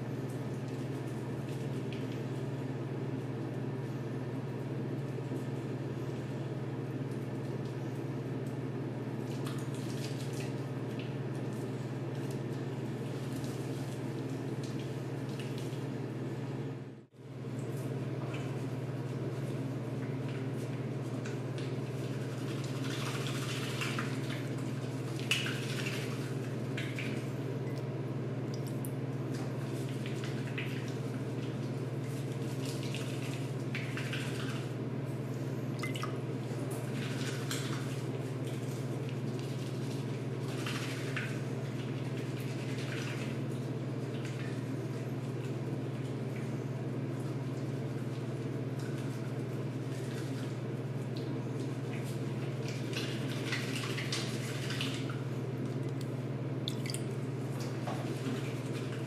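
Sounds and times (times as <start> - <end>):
steady low hum: 0.0 - 59.0
soapy hands rubbing skin: 36.4 - 56.1.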